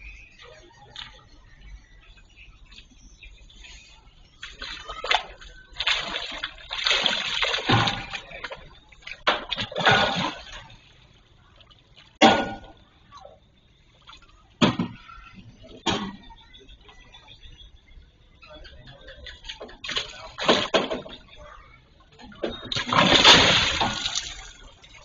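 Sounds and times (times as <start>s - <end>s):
fish thrashing and splashing water: 4.4s - 12.2s, 22.6s - 25.0s.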